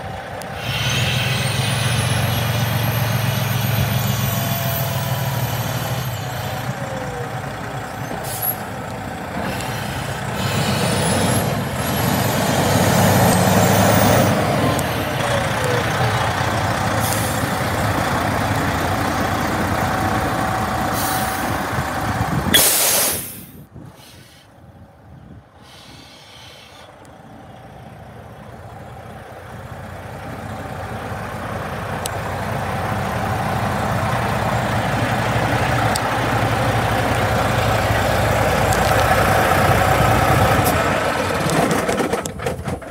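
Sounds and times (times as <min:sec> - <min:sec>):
diesel truck engine running: 0:00.0 - 0:42.9
air brake hiss: 0:00.6 - 0:02.5, 0:20.9 - 0:21.5, 0:22.5 - 0:24.6, 0:25.6 - 0:26.9.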